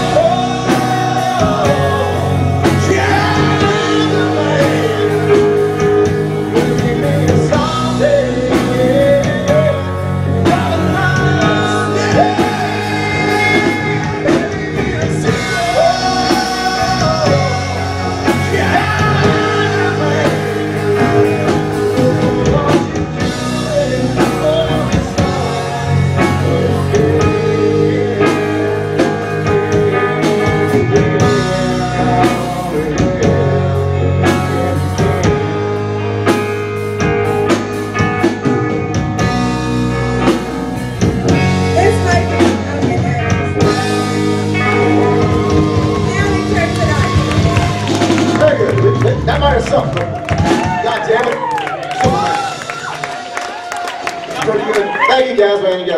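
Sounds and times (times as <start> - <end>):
person singing: 0.0 - 35.2, 41.3 - 48.3
drum kit: 0.0 - 55.1
bass guitar: 0.0 - 55.9
electric guitar: 0.0 - 55.9.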